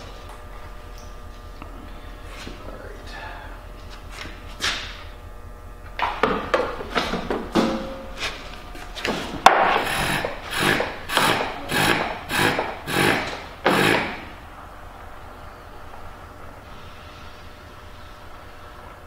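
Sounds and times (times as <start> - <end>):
hand pump rasping strokes: 9.8 - 14.3.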